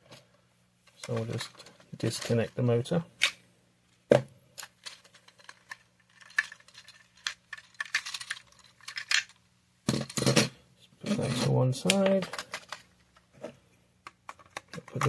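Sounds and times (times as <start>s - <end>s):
plastic bricks clicking: 4.6s - 10.3s, 14.0s - 15.0s.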